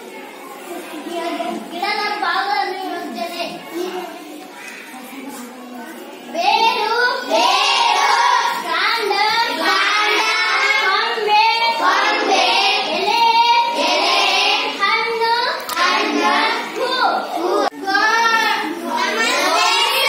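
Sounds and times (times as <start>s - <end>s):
child singing: 6.4s - 20.0s.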